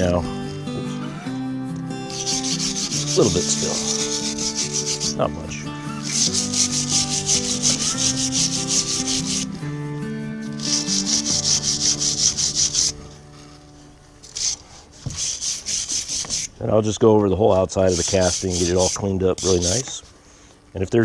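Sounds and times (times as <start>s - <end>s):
wire brush scrubbing metal: 1.8s - 13.5s, 14.2s - 16.6s, 17.3s - 20.0s.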